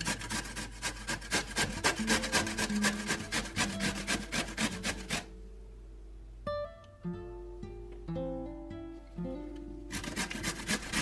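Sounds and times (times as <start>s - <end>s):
zucchini rasping on a box grater: 0.0s - 5.3s, 9.9s - 11.0s.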